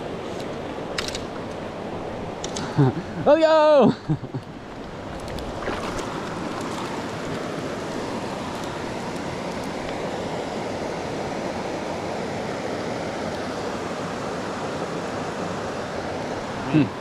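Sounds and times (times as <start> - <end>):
creek flowing over rocks: 4.5 - 17.0.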